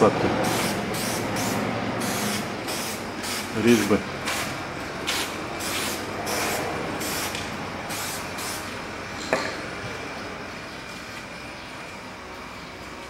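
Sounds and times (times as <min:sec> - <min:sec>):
aerosol can spraying: 0:00.4 - 0:03.6, 0:05.1 - 0:08.7.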